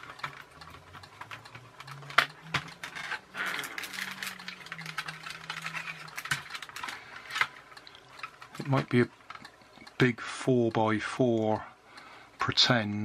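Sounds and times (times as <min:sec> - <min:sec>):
plastic toy car clicks and knocks: 0:00.0 - 0:07.6.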